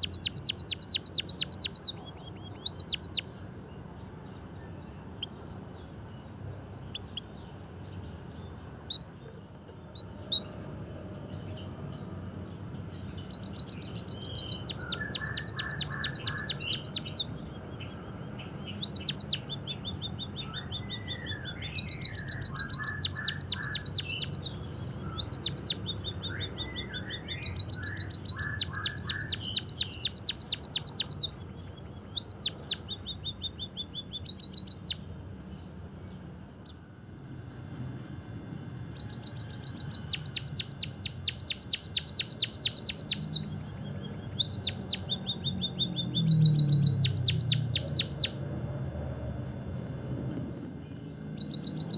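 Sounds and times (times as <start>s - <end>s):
bird high ticking notes: 0.0s - 3.4s, 13.0s - 17.3s, 18.3s - 35.1s, 38.8s - 48.5s, 50.7s - 51.9s
bird buzzy chirps: 0.0s - 51.9s.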